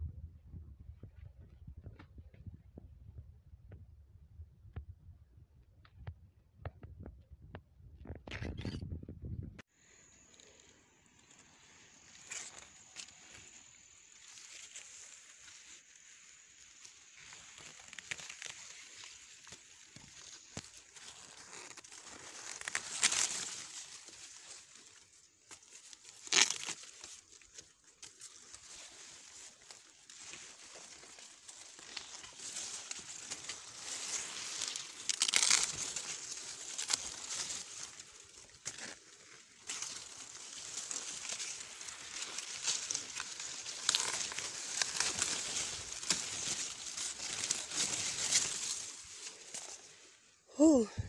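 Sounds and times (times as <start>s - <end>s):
corn leaves rustling: 9.8s - 51.0s
corn stalks cracking: 10.2s - 51.0s.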